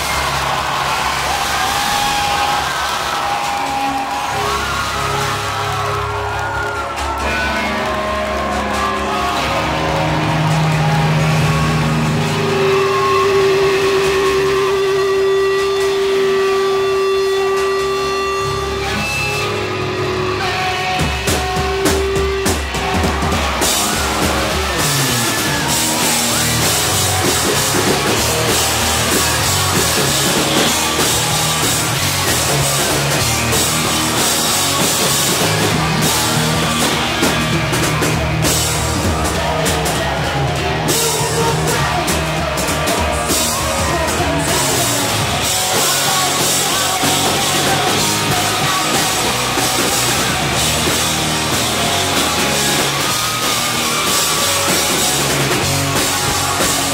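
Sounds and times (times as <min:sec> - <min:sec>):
rock band playing live: 0:00.0 - 0:56.9.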